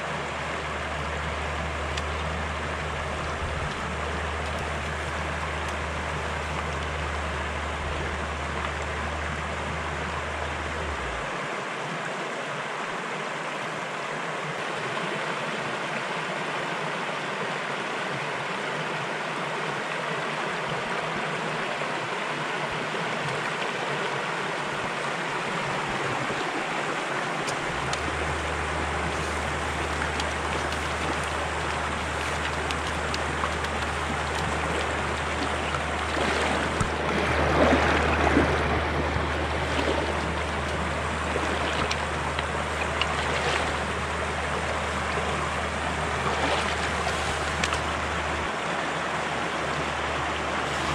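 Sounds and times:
low steady rumble: 0.0 - 11.8, 24.7 - 50.9
stream water running over riffle: 0.0 - 50.9
water splashing surge: 25.8 - 49.0.

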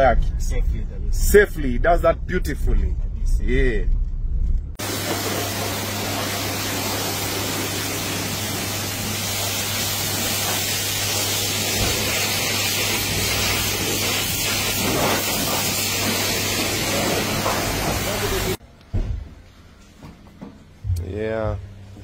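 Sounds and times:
pressure washer water jet hissing: 4.8 - 18.6
low hum: 20.8 - 22.0.

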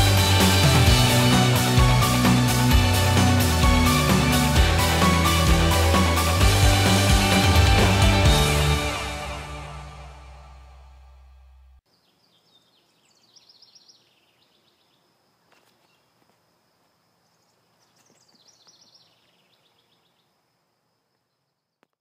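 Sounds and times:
background music: 0.0 - 11.8.

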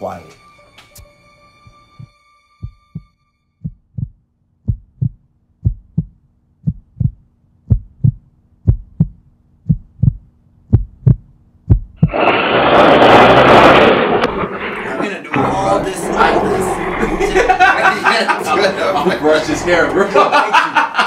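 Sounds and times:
heartbeat thumps: 2.0 - 12.1
loud rushing noise: 12.0 - 20.4.

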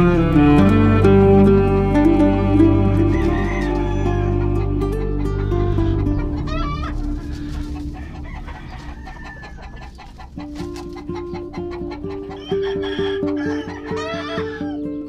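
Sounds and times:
slow melodic background music: 0.0 - 15.0
rooster calling: 0.7 - 14.8
rooster crowing: 2.8 - 14.8.

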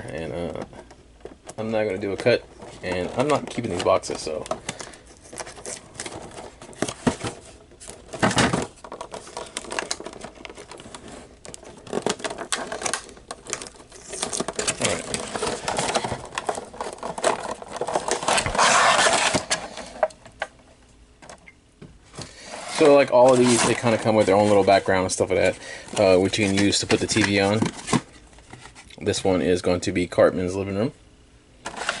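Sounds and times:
tape and card crinkling: 1.3 - 20.5, 22.2 - 29.0
cardboard tearing: 2.8 - 19.8, 22.4 - 24.8.

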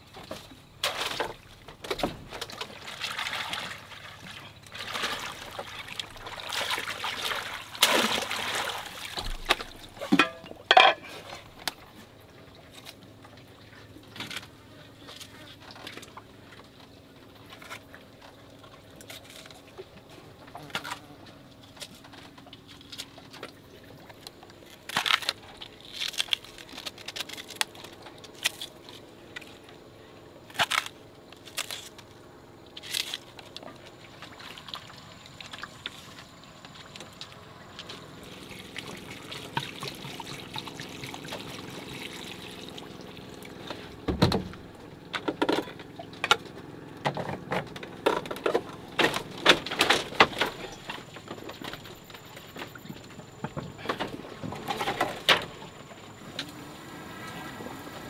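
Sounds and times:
water pouring and trickling: 2.4 - 11.7, 33.8 - 44.0.

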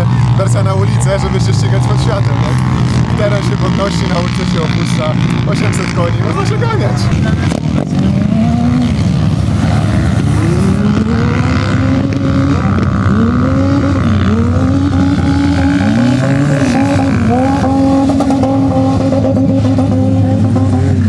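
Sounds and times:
low engine hum: 0.0 - 21.0
off-road vehicle engines revving: 0.0 - 21.0.

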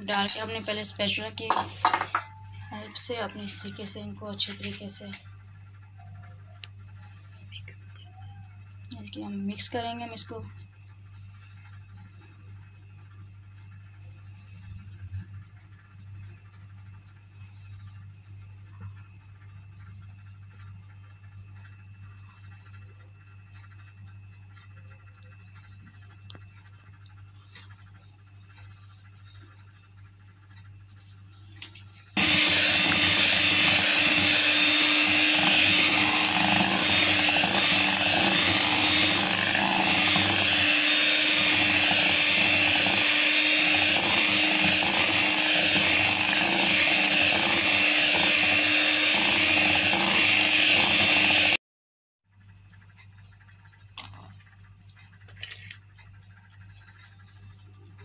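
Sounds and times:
electric hand mixer beating batter: 32.2 - 51.6.

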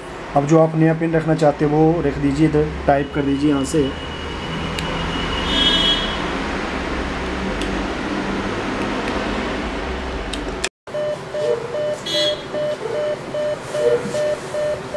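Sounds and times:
atm short beeps: 11.0 - 14.9.

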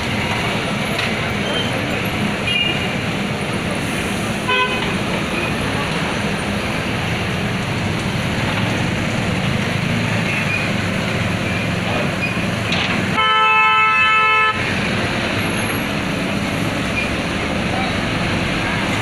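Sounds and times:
diesel engine running: 0.0 - 19.0
vehicle horn honking: 4.5 - 4.9, 13.1 - 14.7.

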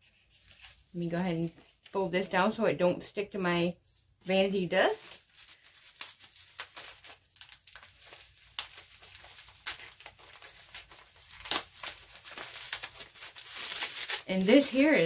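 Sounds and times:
plastic wrapping crinkling: 4.7 - 15.0.

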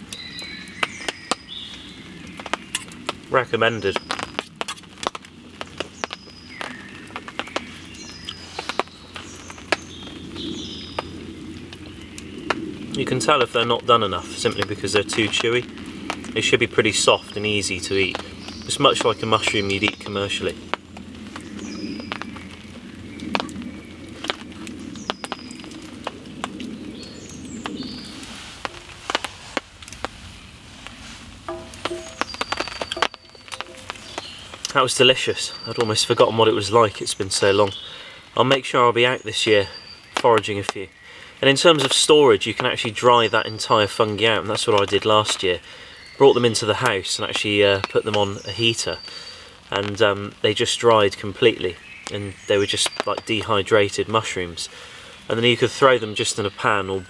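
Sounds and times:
birds chirping: 0.0 - 57.0
birds whistling: 0.1 - 2.9, 5.6 - 11.2, 21.4 - 24.0, 26.8 - 29.0, 31.5 - 36.0, 48.3 - 49.5
utensil tapping metal frying pan: 31.5 - 34.4.

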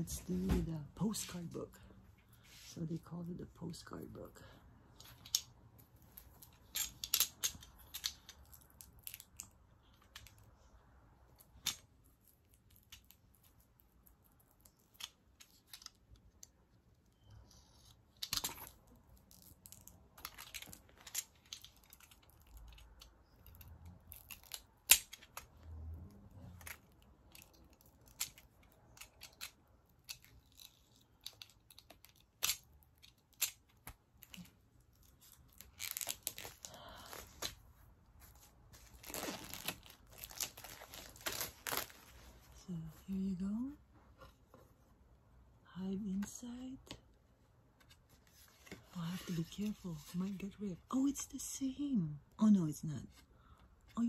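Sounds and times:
rustling card and plastic wrap: 26.5 - 43.8, 47.8 - 51.9.

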